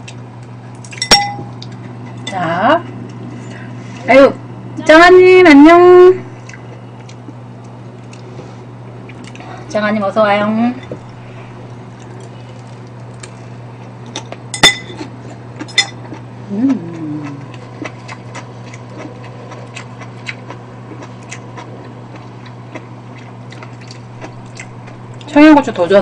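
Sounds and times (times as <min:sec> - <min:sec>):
low steady hum: 0:00.0 - 0:26.0
utensils clinking on ceramic bowls: 0:01.0 - 0:01.6, 0:14.5 - 0:15.0, 0:15.6 - 0:16.0
person humming: 0:16.5 - 0:17.5
faint chewing clicks: 0:16.9 - 0:25.3.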